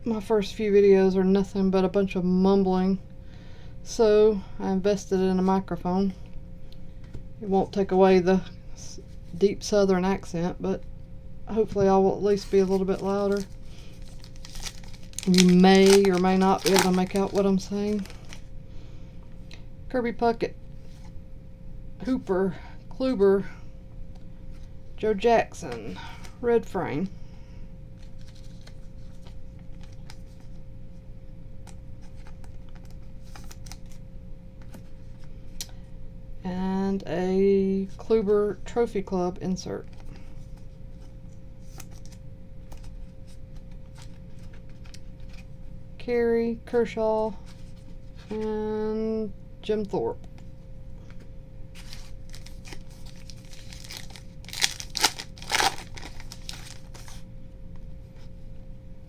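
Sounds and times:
faint steady hum: 0.0s - 59.0s
card handling clicks and rustles: 11.6s - 18.5s, 28.0s - 30.6s, 31.6s - 34.0s, 39.8s - 45.5s, 50.3s - 57.2s
plastic wrapper tearing and crinkling: 13.0s - 18.5s, 32.1s - 34.0s, 51.8s - 57.2s.

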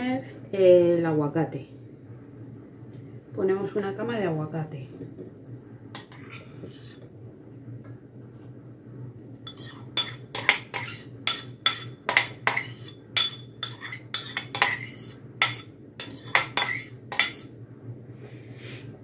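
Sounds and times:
metal spoon clinking on ceramic bowl: 9.5s - 17.4s.

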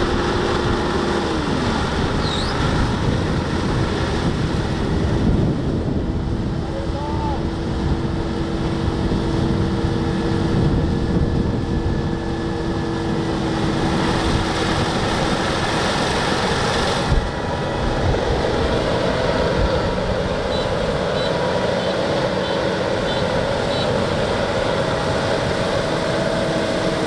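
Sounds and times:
combine harvester running: 0.0s - 27.0s.

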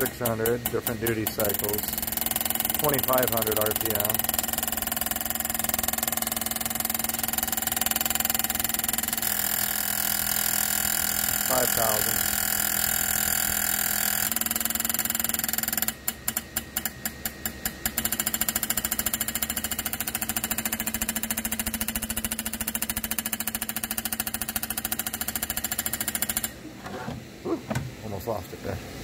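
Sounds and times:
fuel injector popping clatter: 14.4s - 26.5s.

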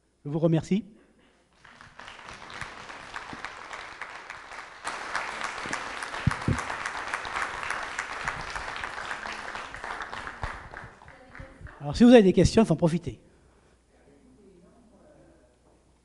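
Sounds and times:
audience applauding: 1.6s - 11.8s.

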